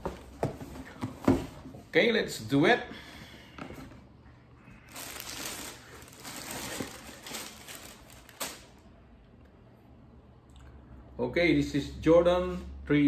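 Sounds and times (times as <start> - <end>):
tissue paper rustling and crinkling: 4.9 - 8.8.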